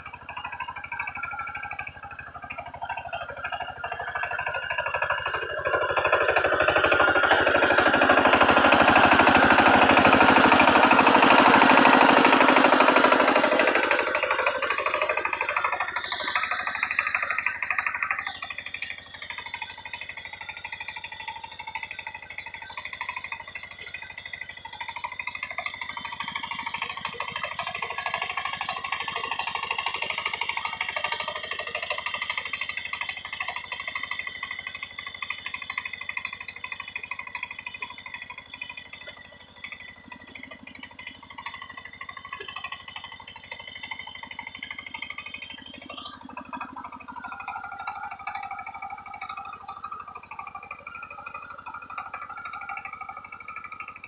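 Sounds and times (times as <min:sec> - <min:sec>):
diesel engine chugging: 0:00.0 - 0:54.0
tines churning mud: 0:00.0 - 0:54.0
rising whine: 0:03.6 - 0:20.3.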